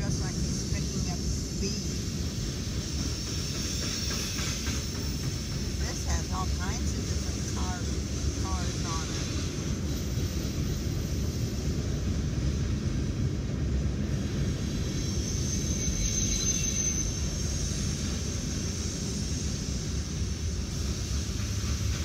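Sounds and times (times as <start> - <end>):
train wheels rumbling on rails: 0.0 - 22.0
faint high-pitched squeal: 14.9 - 17.5.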